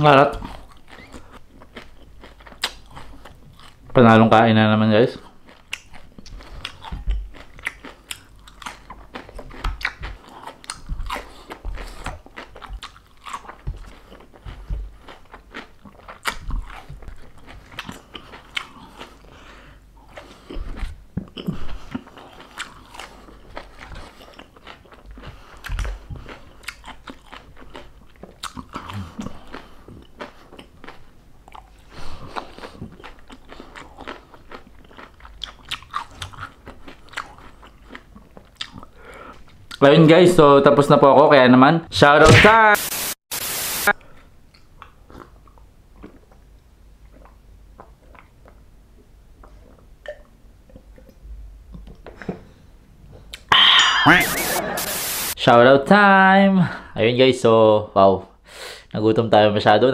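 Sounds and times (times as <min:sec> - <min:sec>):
chewing crunchy food: 0:00.3 - 0:03.9, 0:05.2 - 0:39.8, 0:44.0 - 0:51.9
wet mouth sounds: 0:05.2 - 0:19.3, 0:49.4 - 0:51.2.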